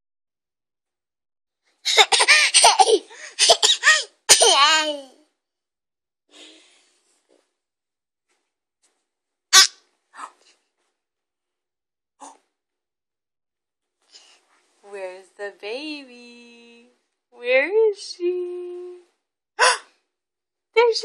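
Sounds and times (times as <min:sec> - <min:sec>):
short sharp vocal burst: 0:09.6 - 0:10.4.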